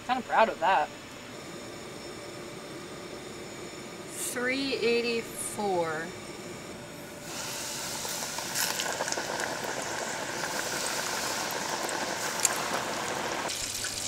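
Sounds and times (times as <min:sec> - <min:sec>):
hot oil sizzling in a pot: 0:07.2 - 0:14.0.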